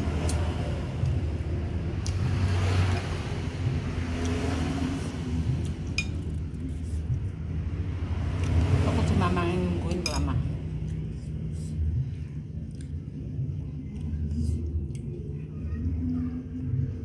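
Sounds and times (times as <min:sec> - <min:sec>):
low engine rumble: 0:00.0 - 0:17.0
spoon clinking on glass bowl: 0:06.0 - 0:06.2.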